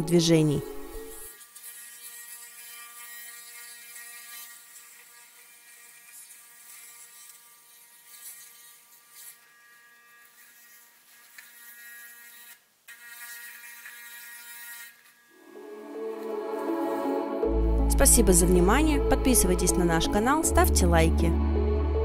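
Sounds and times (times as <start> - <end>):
electric toothbrush buzzing: 0.0 - 17.5.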